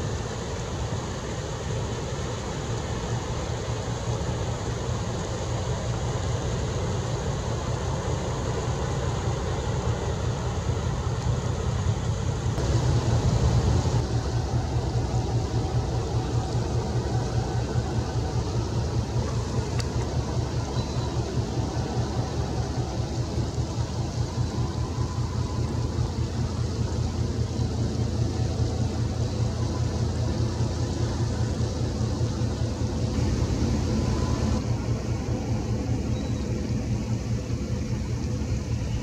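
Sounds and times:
constant hiss: 0:00.0 - 0:39.0
ship diesel engine throbbing: 0:00.0 - 0:39.0.

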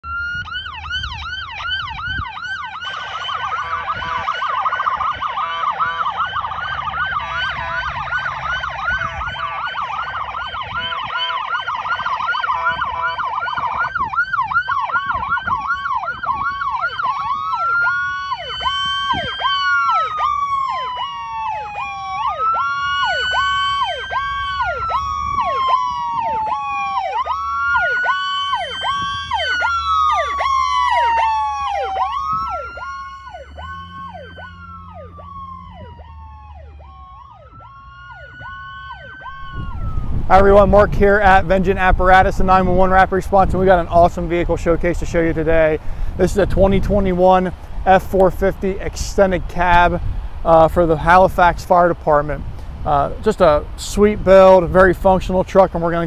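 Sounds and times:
electronic siren yelp: 0:00.0 - 0:41.4
rapid pulsing siren tone: 0:00.0 - 0:43.1
siren wail: 0:00.0 - 0:44.5
low vehicle rumble: 0:00.0 - 0:56.0.

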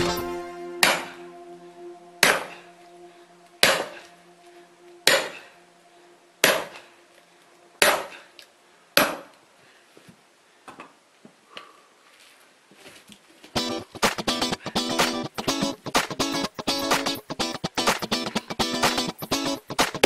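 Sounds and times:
axe splitting firewood: 0:09.0 - 0:09.3.

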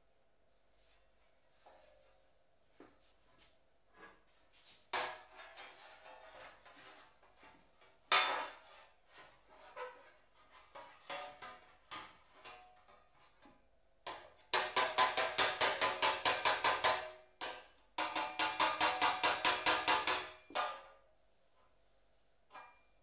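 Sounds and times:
hammering sheet-metal panel: 0:14.1 - 0:20.9.

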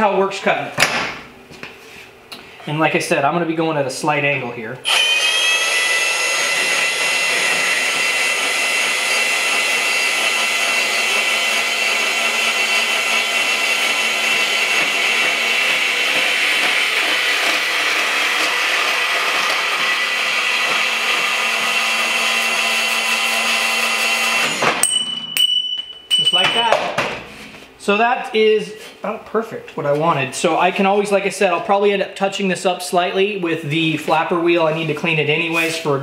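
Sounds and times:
band saw cutting metal tube: 0:04.9 - 0:25.1.

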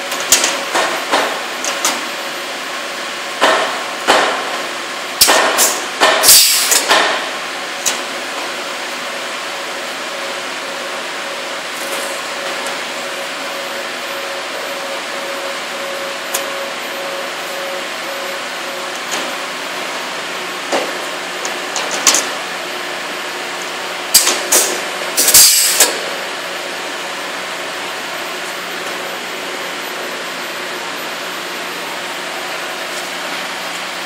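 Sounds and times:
steady machine hum: 0:00.0 - 0:34.0
loud hiss: 0:05.6 - 0:06.8, 0:25.2 - 0:26.0.

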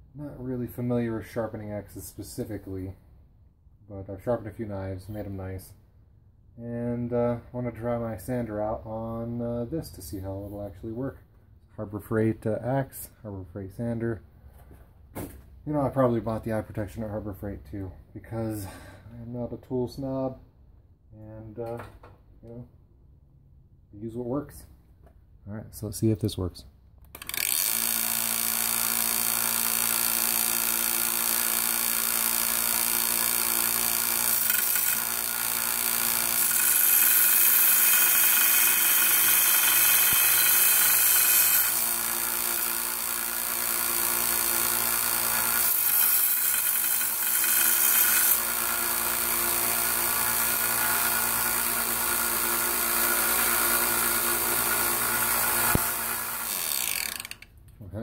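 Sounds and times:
belt sander running: 0:27.2 - 0:57.5
metal grinding on sanding belt: 0:32.8 - 0:57.4.

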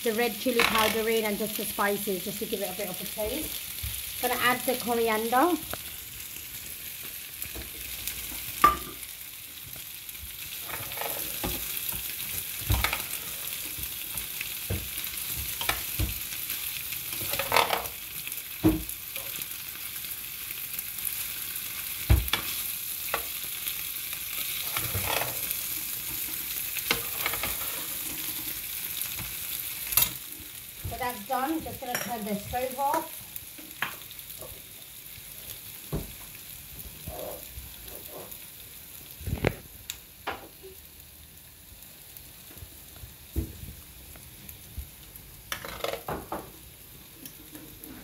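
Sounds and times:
potatoes sizzling in a pan: 0:00.0 - 0:48.0
metal spatula scraping a pan: 0:10.6 - 0:11.7, 0:17.1 - 0:18.0, 0:24.5 - 0:28.6.

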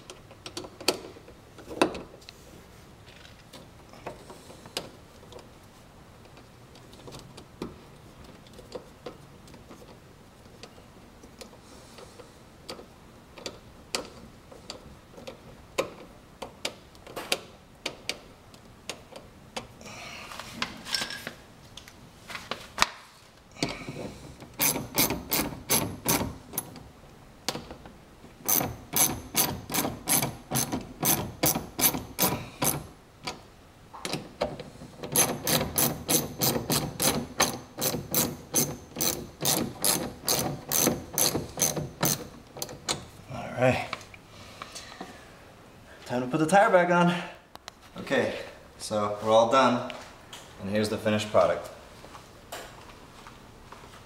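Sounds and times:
socket ratchet clicking: 0:24.6 - 0:26.7, 0:28.5 - 0:32.9, 0:35.1 - 0:42.8.

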